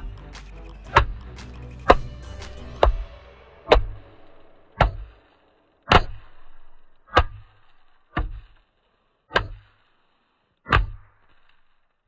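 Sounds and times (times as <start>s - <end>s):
mallet thud on wood: 0.9s - 2.1s, 3.7s - 4.0s, 4.8s - 5.1s, 5.9s - 6.5s, 7.1s - 8.6s, 9.3s - 9.7s, 10.7s - 11.2s
bang snaps cracking: 5.8s - 8.4s.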